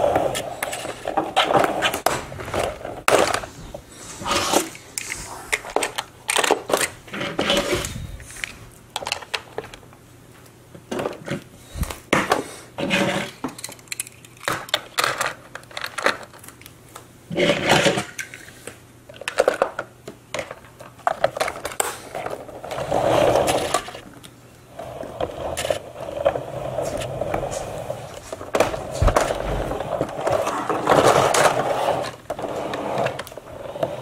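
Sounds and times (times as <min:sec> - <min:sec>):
toy cars clicking and scraping: 0:04.2 - 0:09.8, 0:12.8 - 0:34.0
steady scraping rumble: 0:24.7 - 0:34.0.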